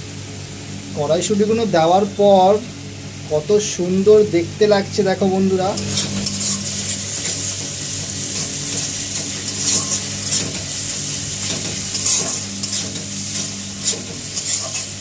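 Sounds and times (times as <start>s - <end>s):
spice paste sizzling in oil: 5.7s - 15.0s
metal spatula scraping a pan: 5.8s - 7.7s, 8.3s - 15.0s.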